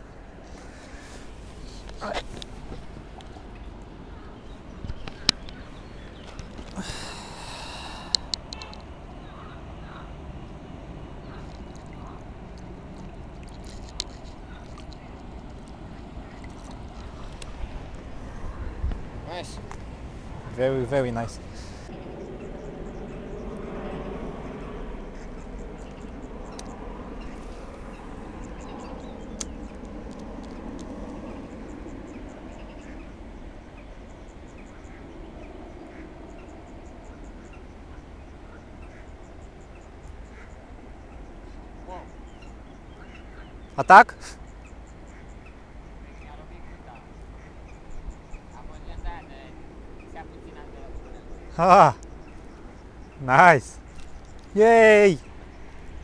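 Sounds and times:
insects chirping: 0:00.0 - 0:09.4
wind rumbling on microphone: 0:00.0 - 0:43.8, 0:44.4 - 0:56.0
small ticks: 0:07.8 - 0:08.9, 0:11.4 - 0:17.5, 0:25.1 - 0:27.4, 0:28.4 - 0:33.1, 0:53.9 - 0:54.6.

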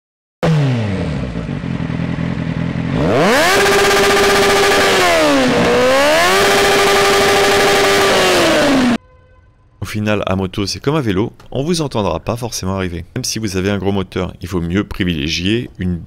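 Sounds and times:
motorcycle engine revving: 0:00.4 - 0:09.0.

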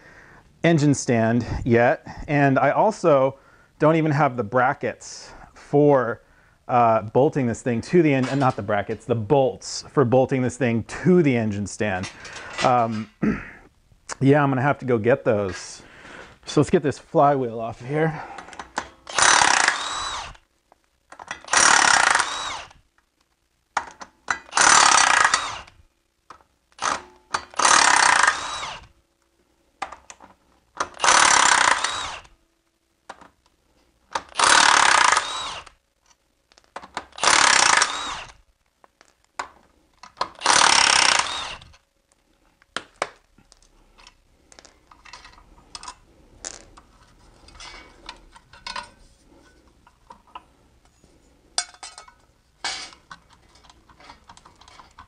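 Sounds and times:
metal parts clicking: 0:42.8 - 0:50.5, 0:51.6 - 0:55.0.

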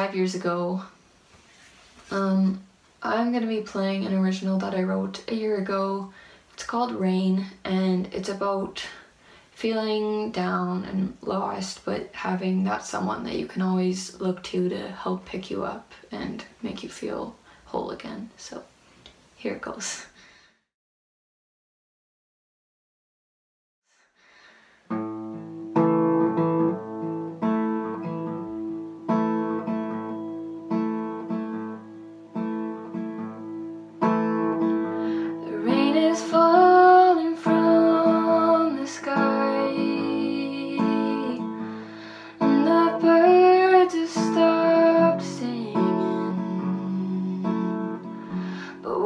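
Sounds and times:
young woman singing: 0:02.1 - 0:09.0, 0:35.1 - 0:49.0
acoustic guitar strumming: 0:24.9 - 0:49.0.

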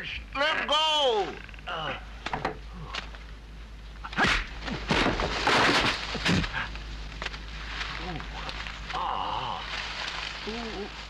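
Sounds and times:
body thrown into straw: 0:04.2 - 0:09.0.

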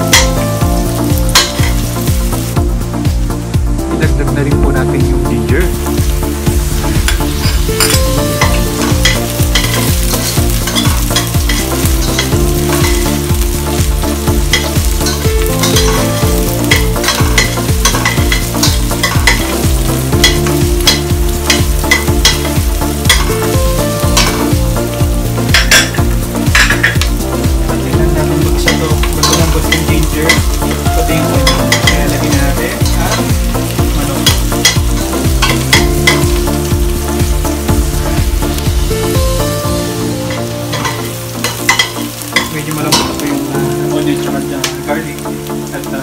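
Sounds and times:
vegetables sizzling in hot oil: 0:00.0 - 0:03.7, 0:05.4 - 0:46.0.

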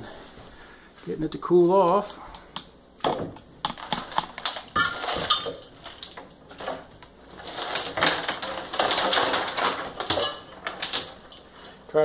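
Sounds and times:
ice cubes clinking: 0:03.7 - 0:11.8.

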